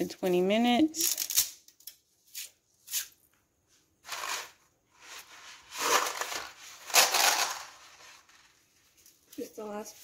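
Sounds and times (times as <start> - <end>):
plastic package crinkling: 5.8 - 8.3.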